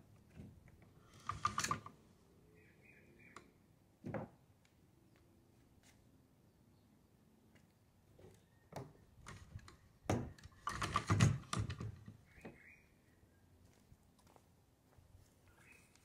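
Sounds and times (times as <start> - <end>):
motor mount clicks and rattles: 1.2 - 2.0, 9.2 - 12.1.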